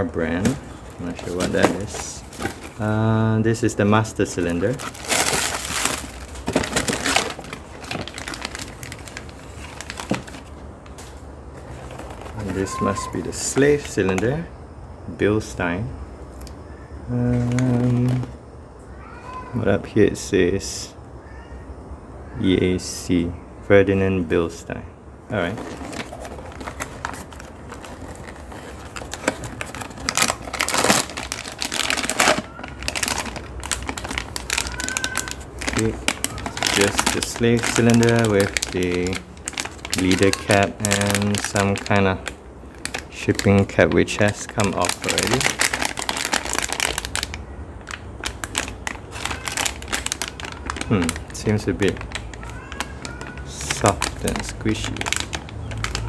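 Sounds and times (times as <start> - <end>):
plastic wrapping crinkling: 0.0 - 14.2, 17.3 - 18.4, 25.3 - 56.0
cardboard box rustling: 0.4 - 2.9, 4.7 - 12.5, 25.5 - 40.0.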